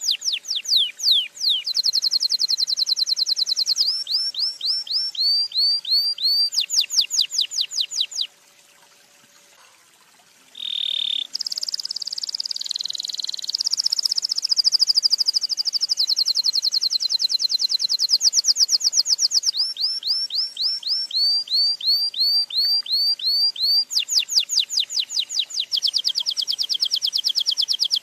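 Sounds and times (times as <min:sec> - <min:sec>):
canary singing: 0:00.0 - 0:08.3, 0:10.6 - 0:28.0.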